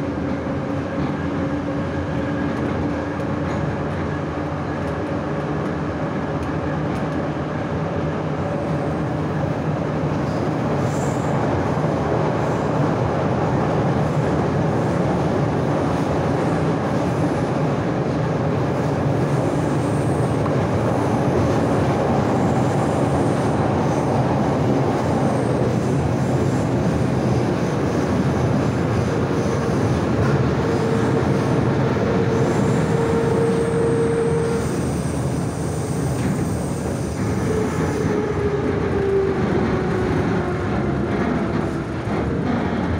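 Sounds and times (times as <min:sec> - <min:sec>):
train wheels rumbling on rails: 0:00.0 - 0:42.9.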